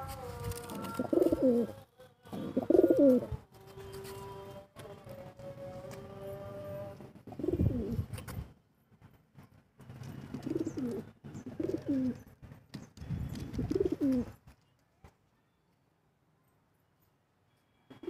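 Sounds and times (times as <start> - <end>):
pigeons cooing: 0.0 - 3.4, 6.8 - 8.1, 10.2 - 12.2, 13.4 - 14.4.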